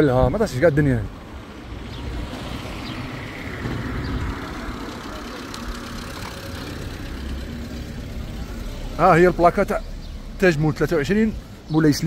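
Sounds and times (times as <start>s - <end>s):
wind and road noise: 0.0s - 12.0s.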